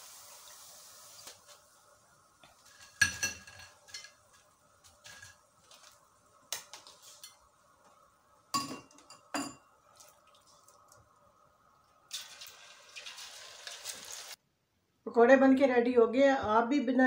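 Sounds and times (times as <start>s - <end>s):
metal spoon clinking on pan: 2.8s - 4.3s.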